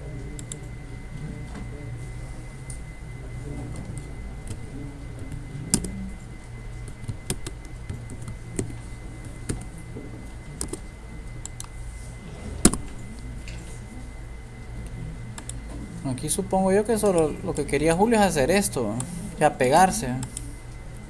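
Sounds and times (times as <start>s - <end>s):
steady low hum: 0.0s - 21.0s
keyboard typing: 3.7s - 6.0s, 6.8s - 9.8s, 10.5s - 11.8s, 12.6s - 13.6s, 15.3s - 15.6s, 20.2s - 21.0s.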